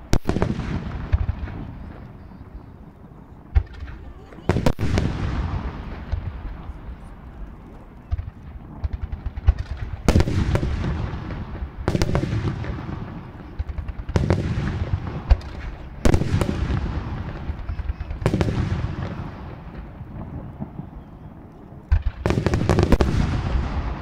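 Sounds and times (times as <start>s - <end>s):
firework shells booming: 0.0s - 2.8s, 3.4s - 7.0s, 8.0s - 24.0s.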